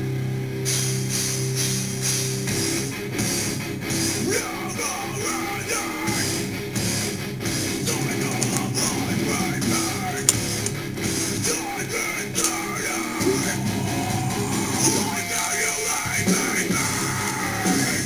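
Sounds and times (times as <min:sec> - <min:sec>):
heavy metal music: 0:00.7 - 0:18.0
person singing: 0:11.4 - 0:18.0.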